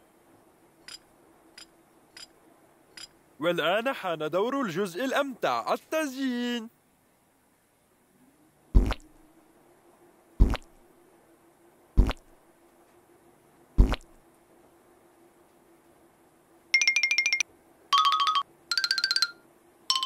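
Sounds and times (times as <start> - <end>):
cartoon frosting squirts: 8.8 - 9.2, 10.4 - 10.7, 12.0 - 12.3, 13.8 - 14.2.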